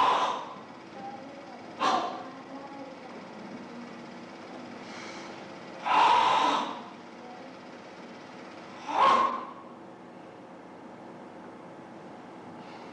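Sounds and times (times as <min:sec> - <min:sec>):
faint breath in: 0:04.8 - 0:05.4, 0:12.6 - 0:12.9
hard hissing exhalations: 0:04.8 - 0:06.7.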